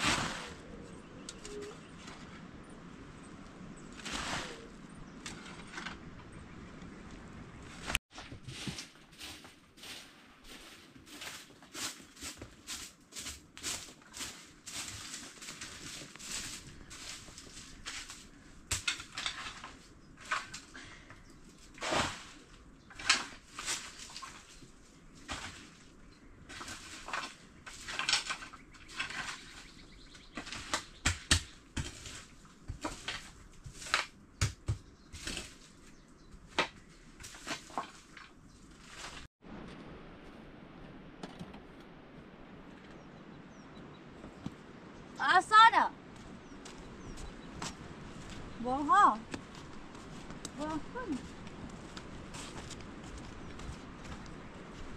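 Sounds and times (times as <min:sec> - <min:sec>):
broom sweeping earth floor: 0:00.0 - 0:00.9, 0:03.9 - 0:05.9, 0:07.7 - 0:20.7, 0:21.4 - 0:40.4.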